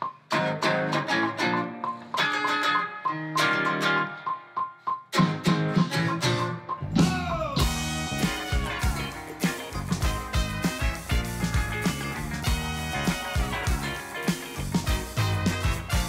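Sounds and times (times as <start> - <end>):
picked guitar notes: 0.0 - 16.0
electric bass: 6.8 - 16.0
drums with cymbals: 6.9 - 16.0.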